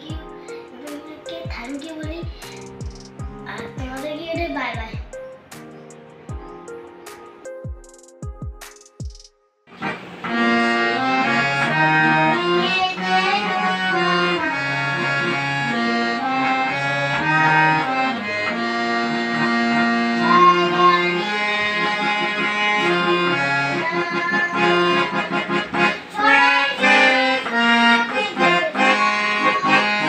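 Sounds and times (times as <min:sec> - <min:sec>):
harmonium melody: 0:09.7 - 0:30.0.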